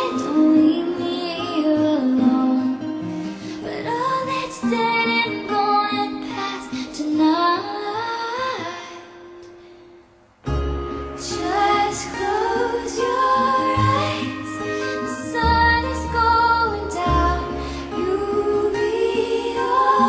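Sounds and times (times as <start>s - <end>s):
instrumental backing: 10.4s - 20.0s
woman singing long notes: 11.2s - 20.0s.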